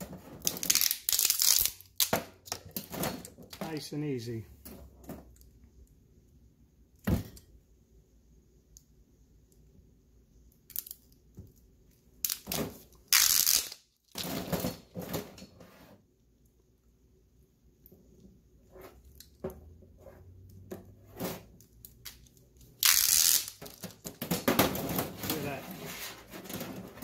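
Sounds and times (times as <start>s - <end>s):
pliers pulling wire insulation: 21.6s - 23.9s.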